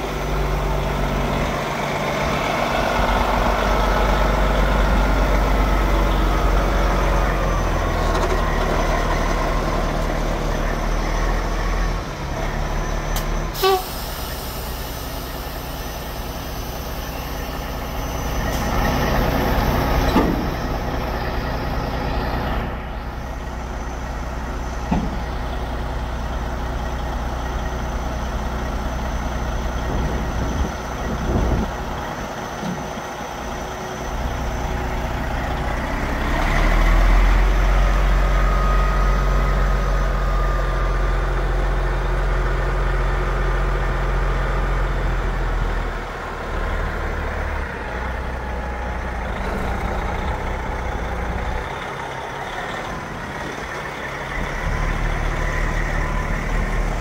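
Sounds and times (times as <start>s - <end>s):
diesel truck engine running: 0.0s - 57.0s.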